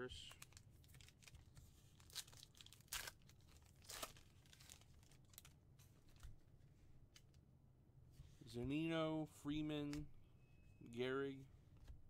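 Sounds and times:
wrapper tearing and crinkling: 0.4 - 5.5.

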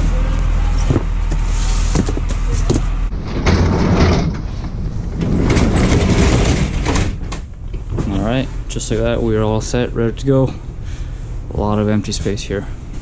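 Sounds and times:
low hum: 0.0 - 13.0
parcels scraping across metal floor: 1.4 - 8.2.

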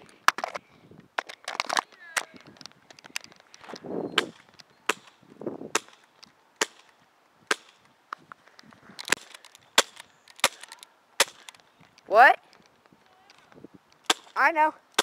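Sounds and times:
airsoft gun shots: 4.2 - 6.0, 9.1 - 11.5.

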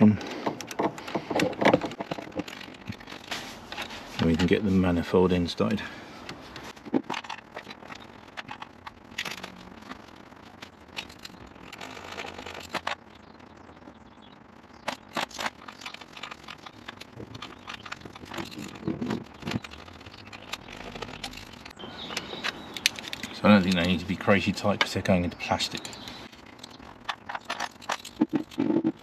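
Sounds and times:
metal parts knocking: 0.0 - 4.6, 6.8 - 13.0, 14.8 - 24.0, 24.6 - 29.0.

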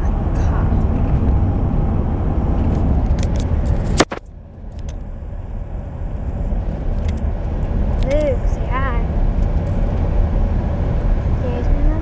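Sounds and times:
car cabin road and engine rumble: 0.0 - 12.0
sharp click: 3.1 - 5.0.

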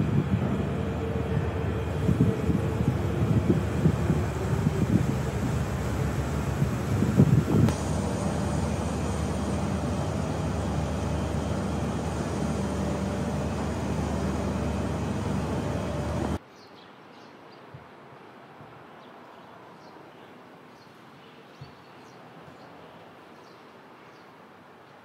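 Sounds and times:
vehicle rumble: 0.0 - 16.4.

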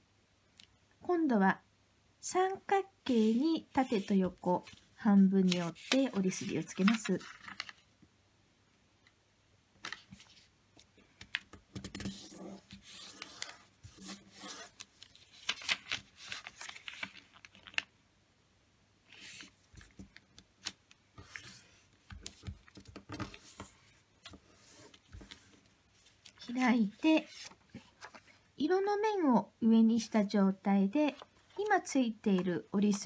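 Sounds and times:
paper rustling and crinkling: 3.2 - 7.9, 9.8 - 10.5, 11.9 - 17.9, 19.1 - 28.4
fingers scraping along paper fold: 5.4 - 7.8, 12.0 - 17.8.

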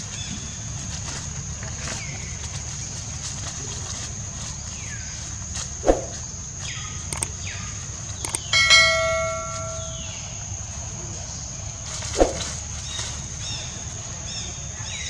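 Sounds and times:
clicks: 7.1 - 7.4, 8.2 - 10.0
notification bell chime: 8.3 - 10.2.

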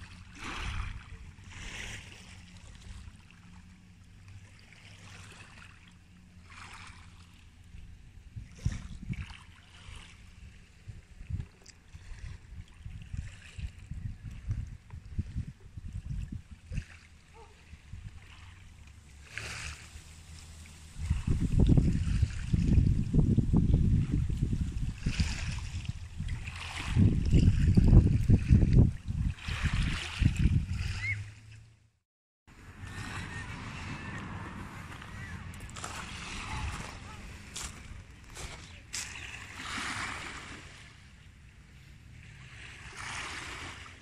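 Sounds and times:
waves on pebble beach: 0.0 - 3.5, 18.2 - 22.5, 29.3 - 31.3, 32.6 - 41.2, 41.8 - 44.0
wind rumble on microphone: 0.0 - 4.5, 7.5 - 31.5, 32.5 - 44.0.

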